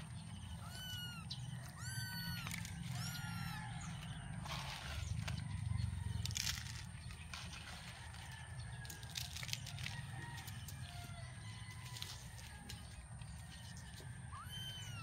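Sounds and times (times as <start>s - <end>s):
kitten mewing: 0.6s - 3.6s.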